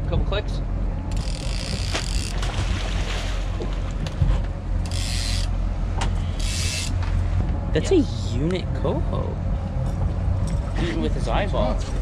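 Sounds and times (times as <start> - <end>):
boat engine humming: 0.0 - 12.0
water splashing: 1.7 - 4.0.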